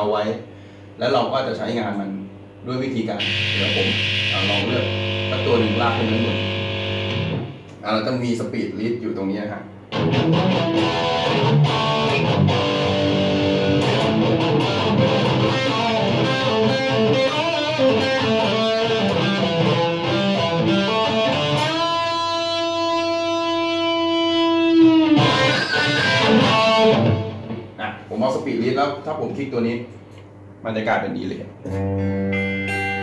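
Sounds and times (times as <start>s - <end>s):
electric guitar lead: 3.2s - 7.7s, 9.9s - 27.8s, 31.7s - 33.0s.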